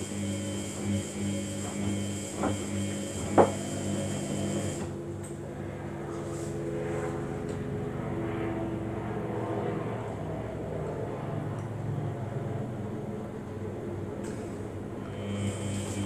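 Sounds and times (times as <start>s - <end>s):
washing machine motor hum: 0.0s - 6.9s, 10.3s - 16.0s.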